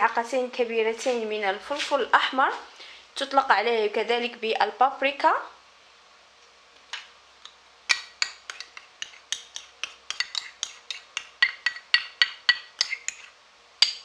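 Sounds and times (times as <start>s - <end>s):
plastic spoon clinking ceramic bowl: 7.9s - 14.0s.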